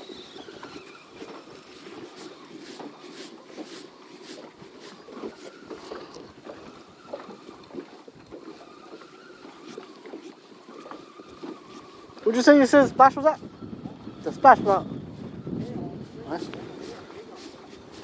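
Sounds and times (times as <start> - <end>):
small splashes and knocks: 0.0 - 12.4
light wind: 0.0 - 18.0
water slapping against boat hull: 0.0 - 18.0.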